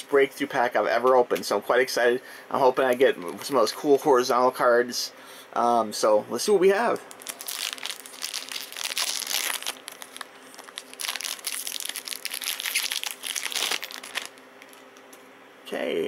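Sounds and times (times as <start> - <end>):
foil wrapper crinkling: 7.1 - 15.0.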